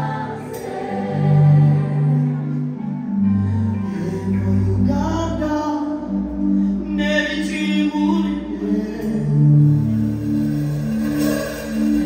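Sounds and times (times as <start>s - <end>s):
choir and man singing gospel: 0.0s - 2.7s.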